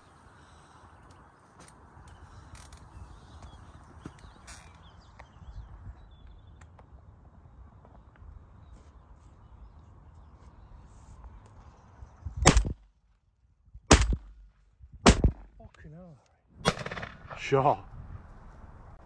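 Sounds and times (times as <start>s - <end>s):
shotgun shots: 12.4s - 12.8s, 13.9s - 14.4s, 15.0s - 15.5s, 16.6s - 17.6s.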